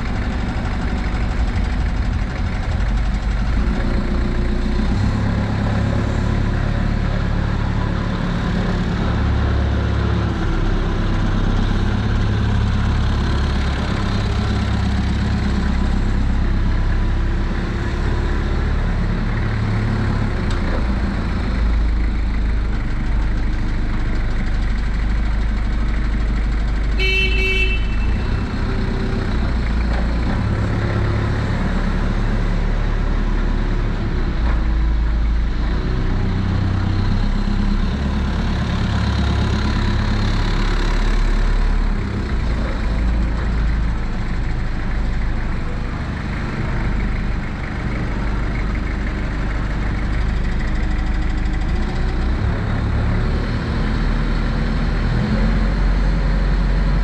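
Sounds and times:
forklift diesel engine running: 0.0s - 57.0s
short horn beep: 27.0s - 28.2s.

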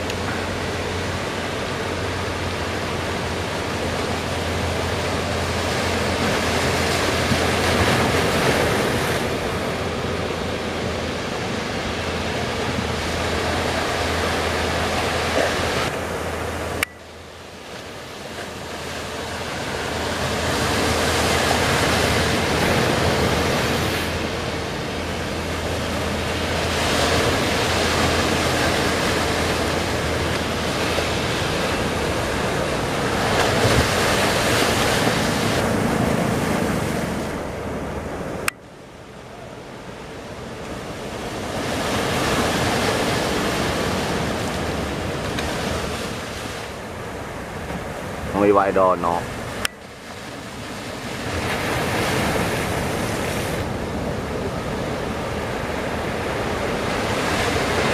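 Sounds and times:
waves breaking and surf rushing: 0.0s - 57.9s.

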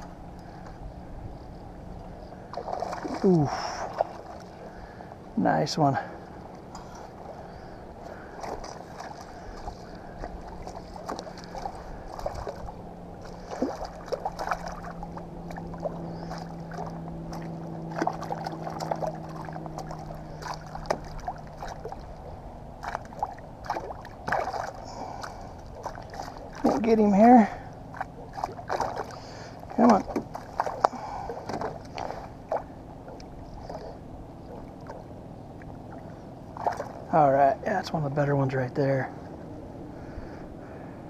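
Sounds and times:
low hum: 0.0s - 41.0s
fish splashing at water surface: 8.1s - 26.8s, 27.8s - 32.8s, 36.6s - 37.1s.

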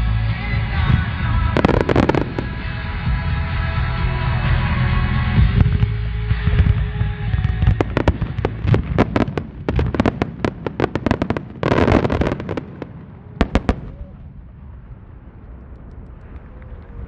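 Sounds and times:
firework crackle: 0.0s - 17.0s.

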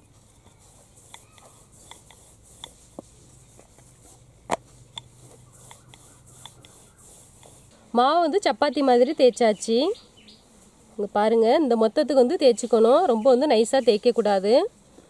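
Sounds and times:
rolling pin rolling dough: 0.0s - 7.7s.

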